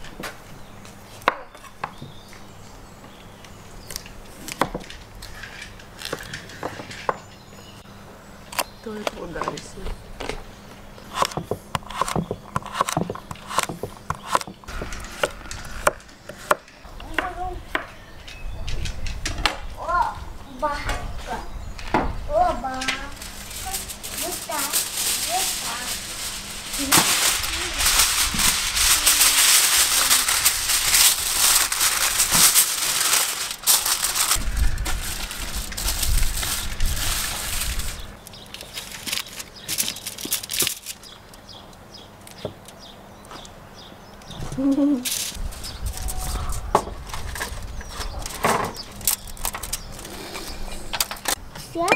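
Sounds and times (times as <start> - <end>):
knife chopping on wooden board: 11.1 - 14.6
aluminium foil crinkling: 22.8 - 41.5, 44.9 - 50.2.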